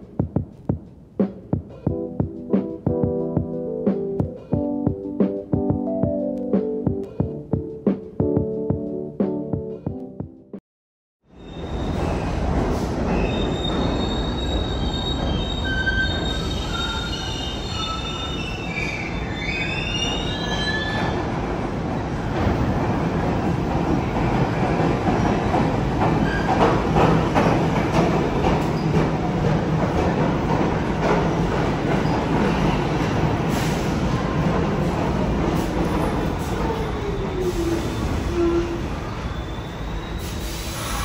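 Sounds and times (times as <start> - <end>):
train wheels squealing on track: 11.3 - 21.3, 26.2 - 26.7, 35.8 - 41.0
subway train rumbling in: 11.3 - 41.0.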